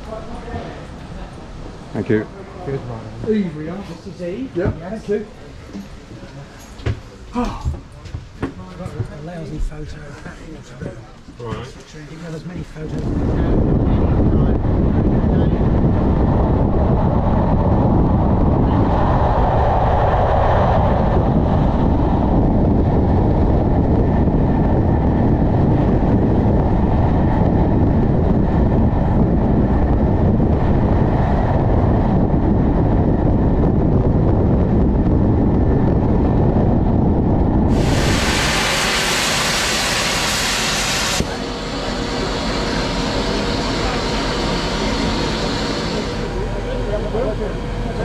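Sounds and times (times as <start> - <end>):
train rolling noise: 0.0 - 48.0
wind rushing on microphone: 7.6 - 48.0
locomotive steam hissing: 37.7 - 48.0.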